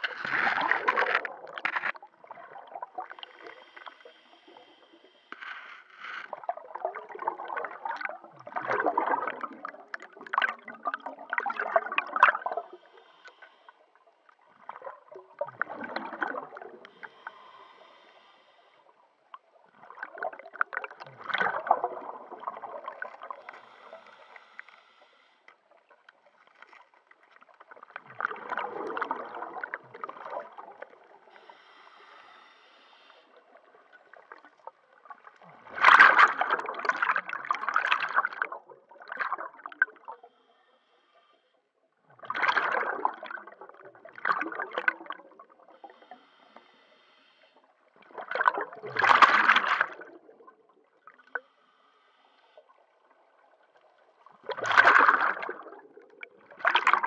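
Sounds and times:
exhaled bubbles gurgling: 0.0 - 4.8, 6.3 - 13.2, 13.9 - 17.6, 19.2 - 24.0, 27.3 - 31.6, 33.2 - 40.3, 42.0 - 46.7, 47.6 - 51.4, 52.8 - 57.0
regulator inhale hiss: 3.2 - 6.2, 12.6 - 14.4, 16.8 - 19.3, 23.3 - 25.7, 31.2 - 33.8, 40.1 - 41.6, 45.7 - 47.8, 51.3 - 53.1.

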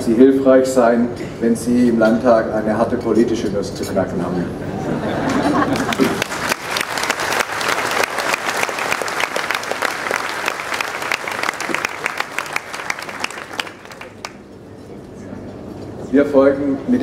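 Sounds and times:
audience applauding: 5.3 - 14.4.

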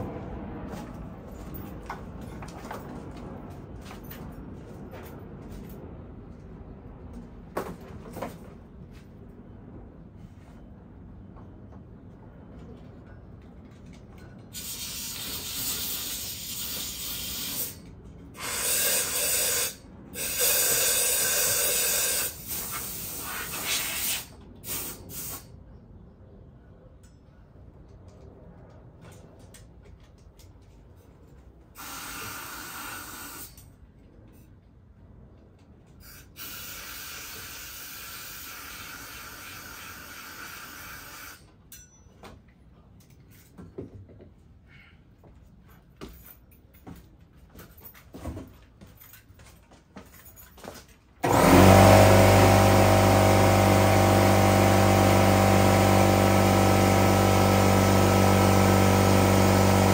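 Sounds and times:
compressed air hissing: 14.6 - 17.8, 18.4 - 25.5, 31.8 - 33.5, 36.0 - 41.4.

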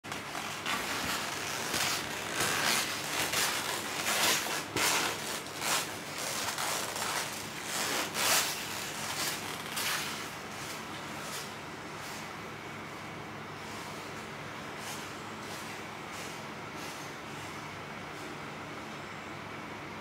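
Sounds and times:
scraping and rubbing: 0.1 - 12.2.

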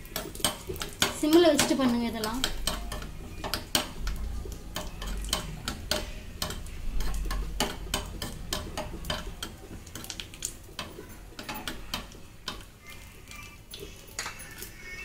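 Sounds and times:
spoon scraping metal pan: 0.0 - 10.2
nuts frying in fat: 0.0 - 15.0.

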